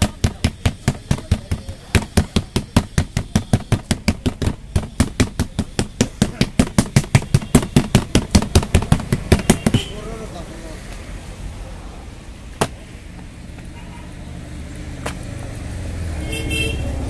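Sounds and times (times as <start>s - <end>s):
palms slapping dough: 0.0s - 9.9s.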